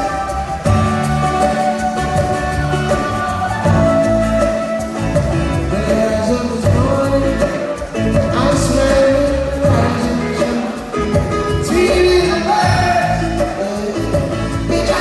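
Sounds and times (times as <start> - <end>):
strummed acoustic guitar: 0.0 - 15.0
man singing: 5.6 - 15.0.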